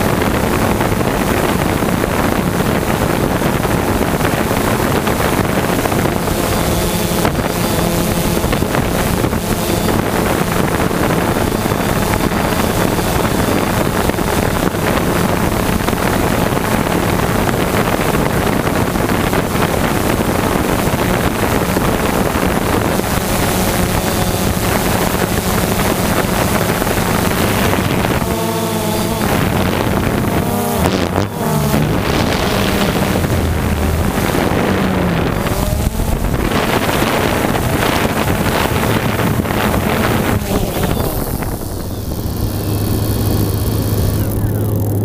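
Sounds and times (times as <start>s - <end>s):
drone motors and propellers: 0.0s - 45.0s
wind buffeting microphone: 0.0s - 45.0s.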